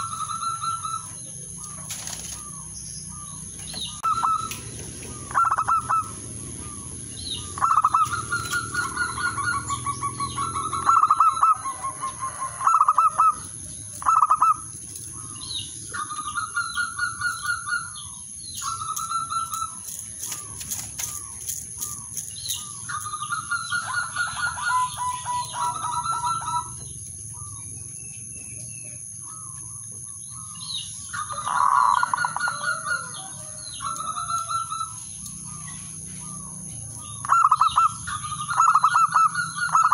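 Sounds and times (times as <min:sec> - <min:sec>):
doves cooing: 0:00.0 - 0:39.9
wing flapping: 0:01.7 - 0:02.6, 0:18.9 - 0:23.2.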